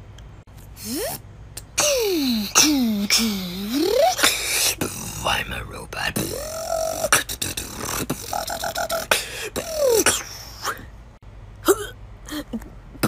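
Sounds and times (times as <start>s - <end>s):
robot beatboxing: 0.8s - 10.9s.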